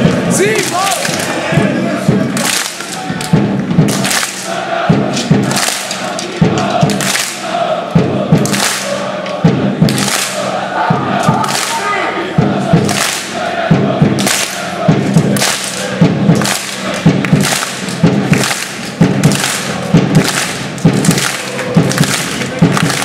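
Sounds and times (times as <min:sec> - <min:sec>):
crowd chanting: 0:00.0 - 0:23.0
crowd clapping in unison: 0:00.5 - 0:12.0, 0:12.7 - 0:23.0.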